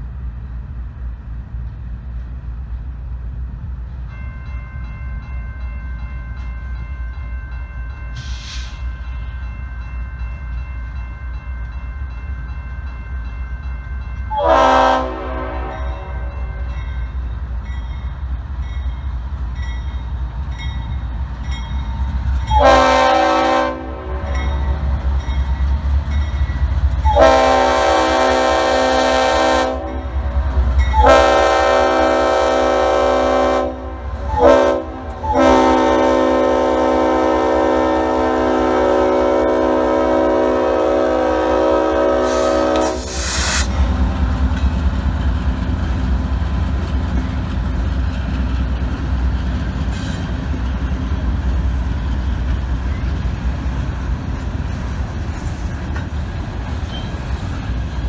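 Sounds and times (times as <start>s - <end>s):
train air horn blowing: 8.2s - 8.9s, 14.3s - 16.7s, 22.5s - 24.5s, 27.0s - 43.8s
locomotive engine rumble: 10.4s - 58.0s.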